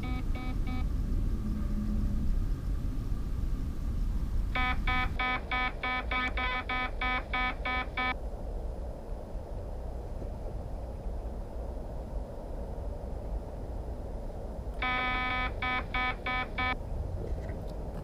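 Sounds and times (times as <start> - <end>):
low steady rumble: 0.0 - 18.0
rapid electronic beeps: 4.6 - 8.2, 14.8 - 16.8.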